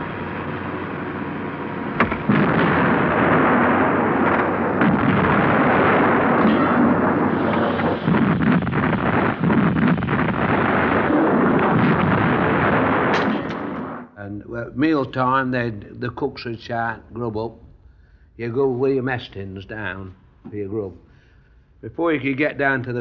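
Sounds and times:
artillery fire and explosions: 0:00.0 - 0:14.2
sharp cracks: 0:00.6 - 0:14.2.

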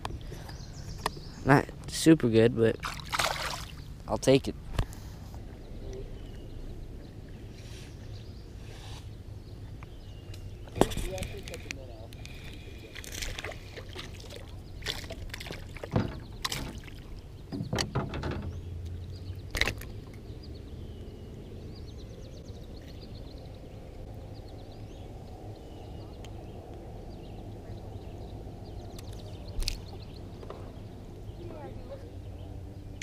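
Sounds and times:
birds chirping faintly: 0:00.0 - 0:33.0
fishing rod knocks and rattles: 0:15.0 - 0:16.9, 0:17.5 - 0:18.7.

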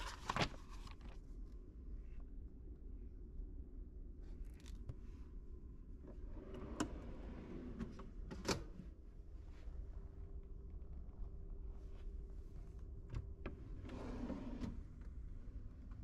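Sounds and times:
steady low hum: 0:00.1 - 0:16.0
drawer scraping: 0:13.8 - 0:14.9.

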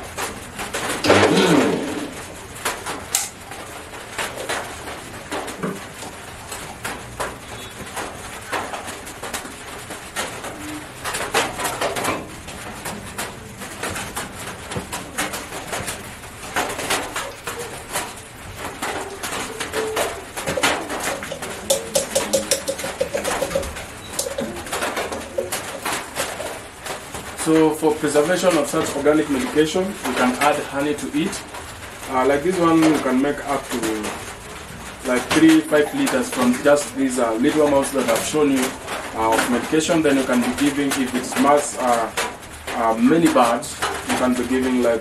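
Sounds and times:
chicken cooing: 0:17.1 - 0:18.1, 0:18.7 - 0:26.5
plastic jug clicks and knocks: 0:20.4 - 0:26.4.

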